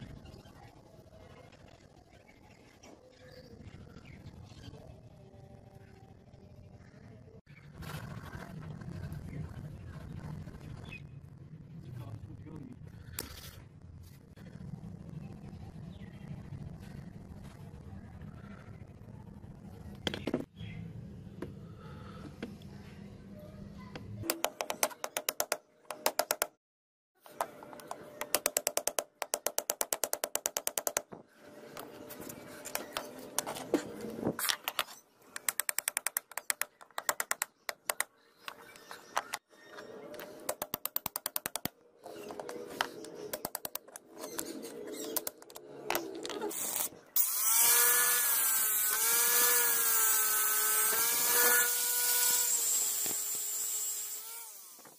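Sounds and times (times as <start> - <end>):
chisel tapping: 24.3 - 26.5
angle grinder whining: 46.5 - 54.9.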